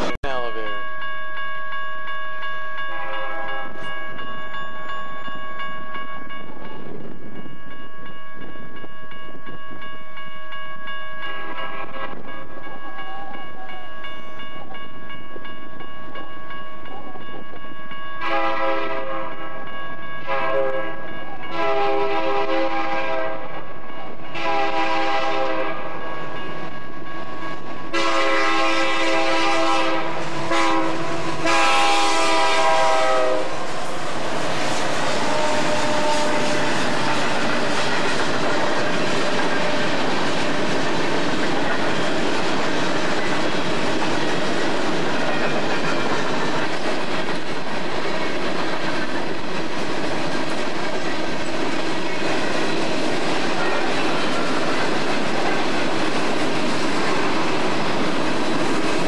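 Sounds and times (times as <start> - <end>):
locomotive air horn blasts: 18.2 - 19.4, 20.2 - 23.6, 24.3 - 26.0, 27.9 - 33.8, 35.0 - 37.3
train wheels clattering: 27.9 - 59.0.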